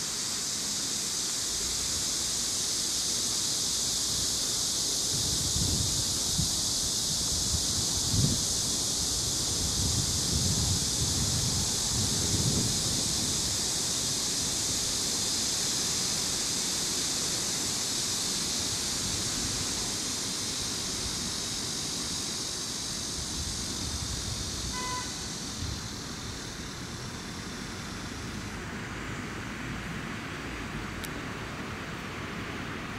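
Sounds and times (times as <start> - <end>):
distant traffic: 0.0 - 32.9
high even hiss: 0.0 - 32.9
wind rumble: 5.1 - 16.3.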